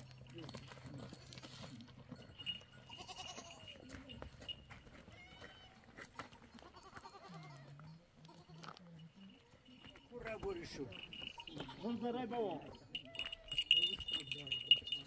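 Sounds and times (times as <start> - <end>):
goats bleating: 2.9 - 3.8, 6.5 - 7.7.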